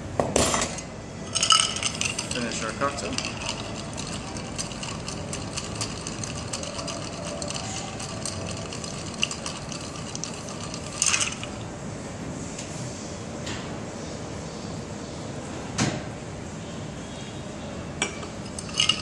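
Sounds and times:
ice cubes clinking in glass: 1.3s - 11.6s, 18.5s - 19.0s.

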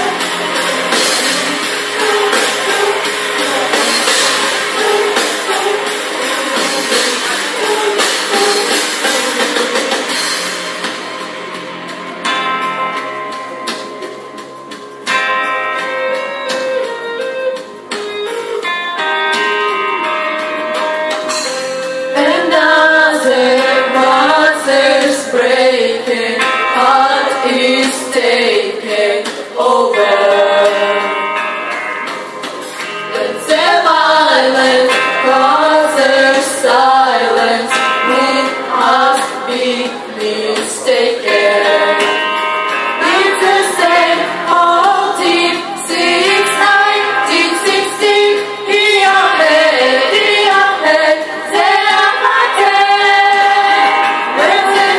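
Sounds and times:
women singing into microphones: 0.0s - 10.3s, 21.3s - 31.8s, 32.9s - 54.9s.

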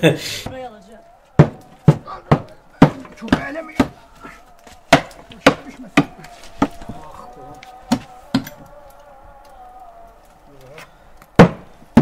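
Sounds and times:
wooden planks knocking: 11.4s - 12.0s.

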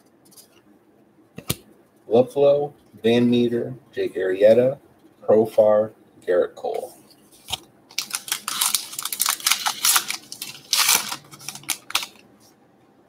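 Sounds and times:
cards being handled: 6.8s - 12.2s
foil wrapper tearing and crinkling: 7.4s - 12.2s.

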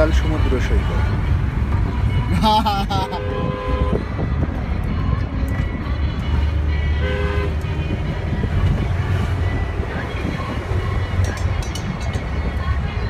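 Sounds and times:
vehicle engine and road rumble: 0.0s - 13.0s
car horn blast: 3.1s - 4.0s, 7.0s - 7.6s.

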